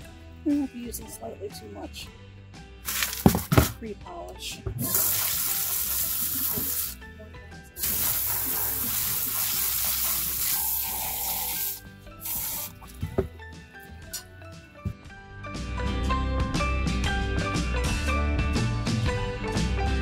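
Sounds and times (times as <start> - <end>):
hose spraying water onto stones: 4.8 - 7.0, 7.8 - 12.8.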